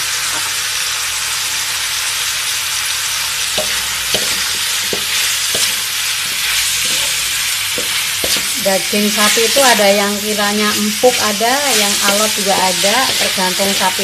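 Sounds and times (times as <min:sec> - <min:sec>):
meat sizzling in a wok: 0:00.0 - 0:14.0
wooden spatula scraping a pan: 0:03.6 - 0:14.0.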